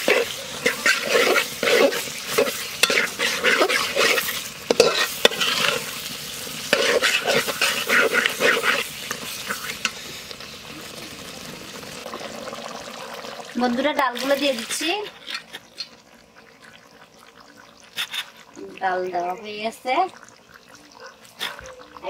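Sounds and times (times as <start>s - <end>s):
metal spatula scraping a pot: 0.0s - 10.3s
masala sizzling: 0.0s - 22.0s.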